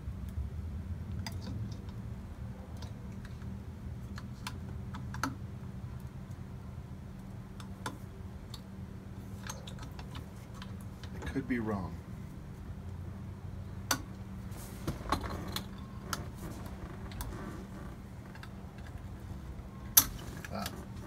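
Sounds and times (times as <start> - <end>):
steady low hum: 0.0 - 21.0.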